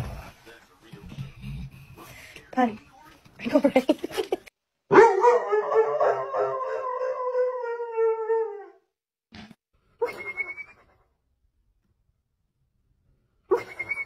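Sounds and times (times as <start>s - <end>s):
dog howling: 4.9s - 8.8s.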